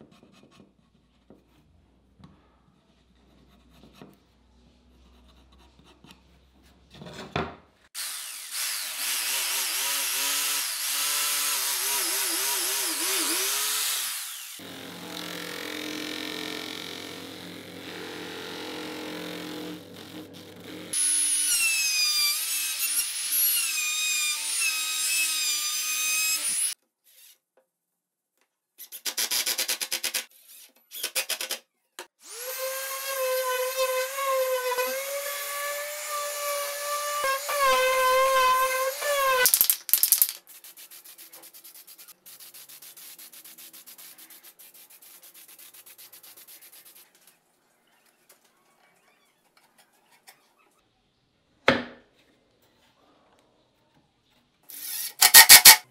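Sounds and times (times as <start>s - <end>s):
orbital sander on plywood: 8.0s - 15.1s.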